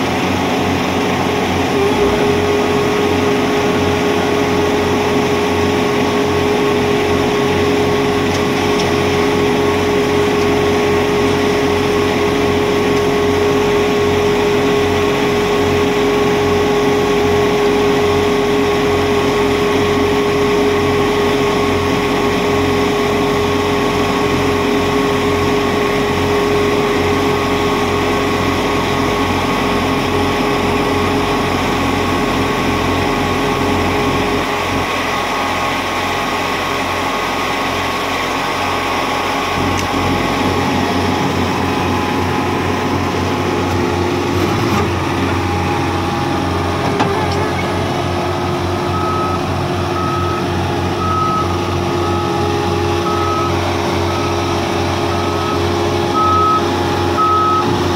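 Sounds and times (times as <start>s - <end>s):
concrete screed engine running: 0.0s - 57.9s
reversing alarm beeping: 48.8s - 57.9s.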